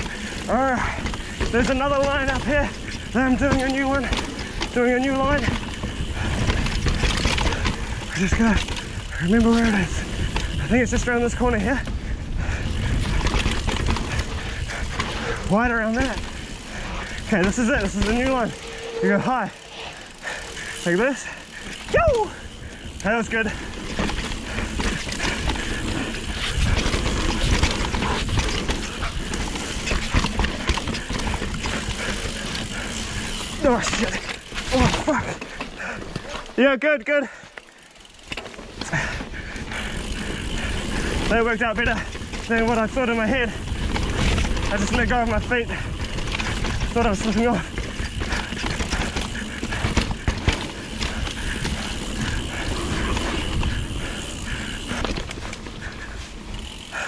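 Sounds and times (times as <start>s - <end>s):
wind rumbling on microphone: 0.0s - 33.6s, 47.6s - 56.1s
bike clattering over bumps: 0.0s - 36.6s, 37.4s - 57.0s
wind rumble on microphone: 5.5s - 15.5s.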